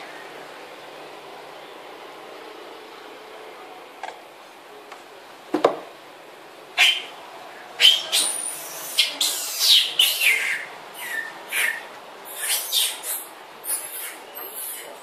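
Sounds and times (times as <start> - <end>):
baby monkey screaming: 6.8 - 7.1, 7.8 - 15.0.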